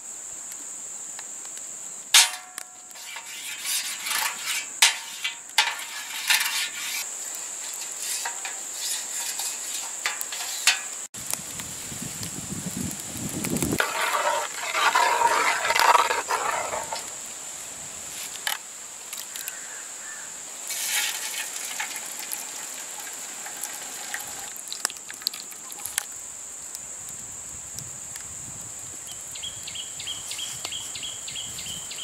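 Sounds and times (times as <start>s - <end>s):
high-pitched hiss: 0.0s - 32.0s
egg mixture splashing and sizzling: 20.7s - 26.1s.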